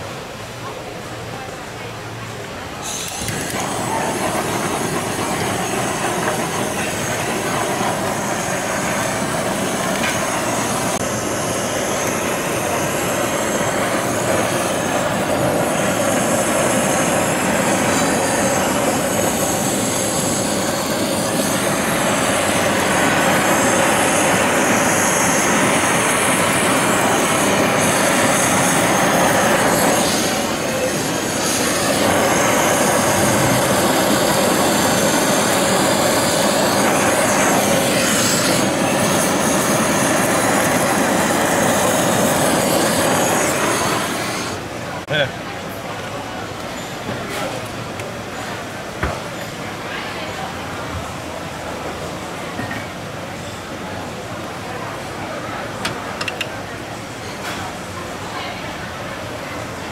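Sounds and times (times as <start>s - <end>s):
blowtorch flame hissing: 2.8s - 45.1s.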